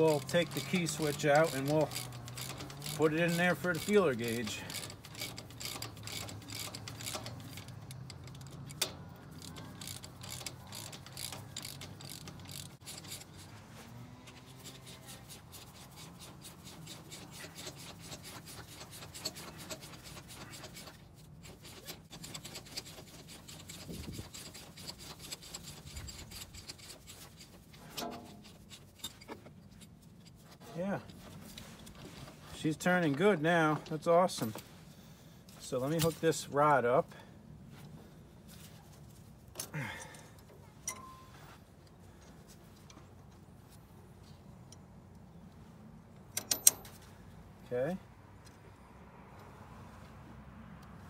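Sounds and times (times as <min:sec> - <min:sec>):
metal rubbing and scraping: 0:00.0 - 0:36.5
socket ratchet clicking: 0:04.7 - 0:13.5.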